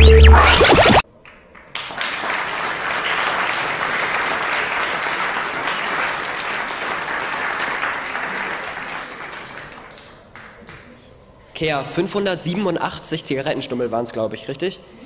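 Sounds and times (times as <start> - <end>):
audience applauding: 1.2 - 10.9.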